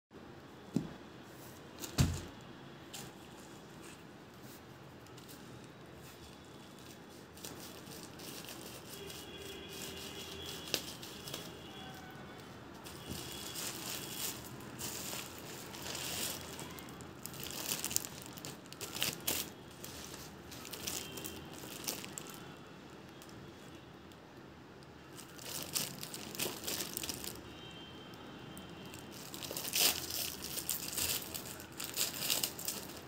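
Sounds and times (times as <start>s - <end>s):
plastic packaging crinkling: 6.2s - 23.4s, 25.0s - 27.6s, 28.5s - 33.0s
sharp plastic crackles: 6.6s - 23.7s, 24.9s - 27.8s, 28.5s - 33.0s.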